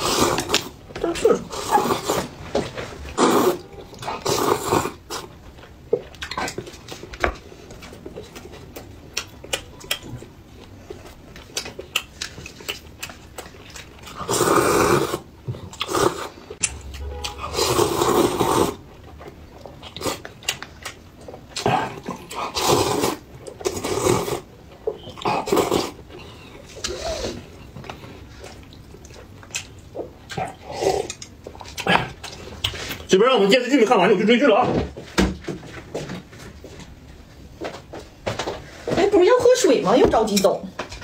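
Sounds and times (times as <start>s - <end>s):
man slurping noodles: 3.1s - 5.0s, 14.2s - 16.4s, 17.2s - 18.8s, 22.5s - 24.4s
wet chewing and smacking clicks: 5.6s - 14.2s, 18.9s - 22.4s, 27.6s - 33.0s.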